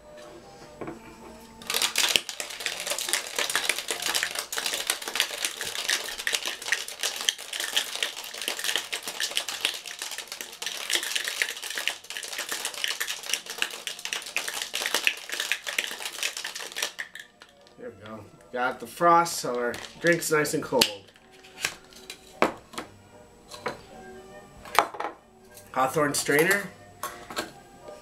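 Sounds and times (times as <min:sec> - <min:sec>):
ice rattling in cocktail shaker: 0:01.6 - 0:17.8, 0:19.6 - 0:21.2.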